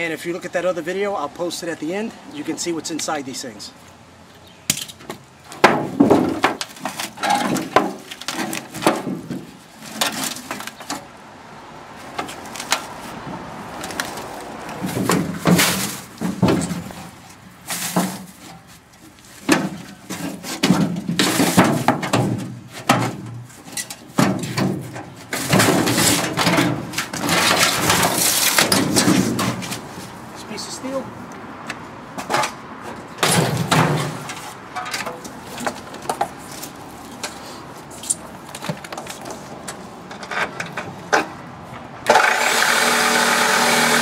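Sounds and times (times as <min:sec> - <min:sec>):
metal parts knocking and clanking: 0:05.6 - 0:09.4, 0:19.5 - 0:29.7, 0:33.2 - 0:36.2.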